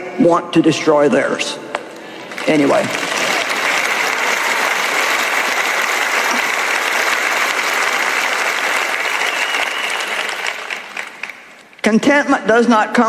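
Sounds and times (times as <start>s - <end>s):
crowd applauding: 2.0s - 11.7s.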